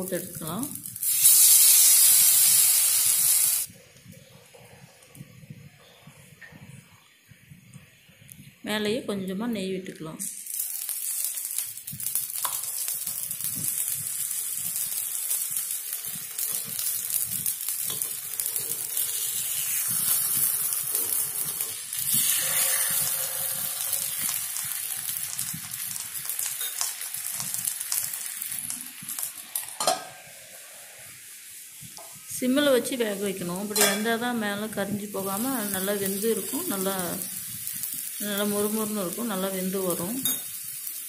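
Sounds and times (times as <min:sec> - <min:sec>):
batter sizzling in oil: 0:00.0 - 0:03.7, 0:10.4 - 0:41.0
spoon scraping a pan: 0:17.9 - 0:24.4
steel lid clanking: 0:29.8 - 0:30.2.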